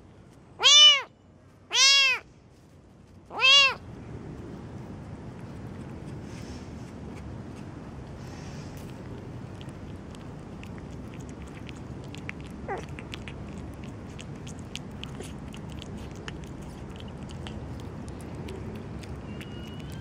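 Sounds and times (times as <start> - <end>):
low background noise: 0.0 - 20.0
kitten chewing wet food: 4.2 - 20.0
kitten mew: 12.7 - 13.6.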